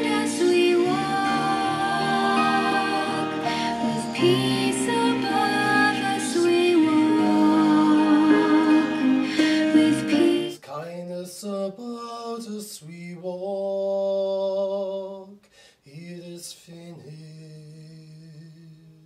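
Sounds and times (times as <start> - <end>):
slow gentle music: 0.0 - 10.6
solo voice singing long notes: 0.0 - 19.0.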